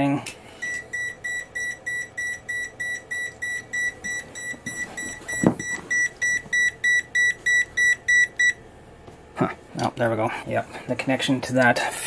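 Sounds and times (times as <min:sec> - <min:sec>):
fan alarm short high beeps: 0:00.6 - 0:08.6.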